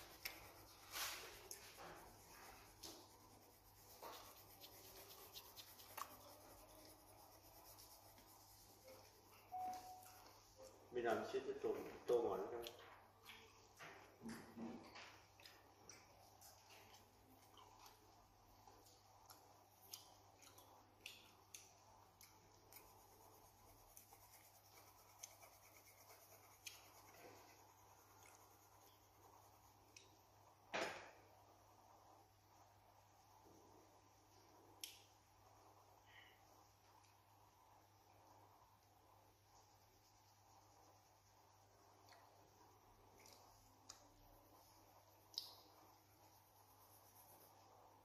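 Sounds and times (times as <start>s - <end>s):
pencil scratching on paper: 0.0s - 9.5s, 22.8s - 29.9s, 46.1s - 47.9s
low steady hum: 0.0s - 48.0s
short steady tone: 9.4s - 10.2s.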